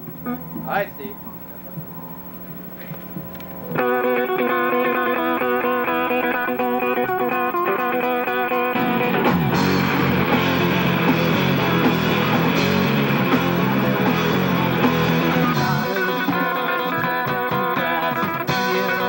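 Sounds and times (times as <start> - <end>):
electric guitar riff: 3.6 - 19.0
live rock band playing: 3.8 - 19.0.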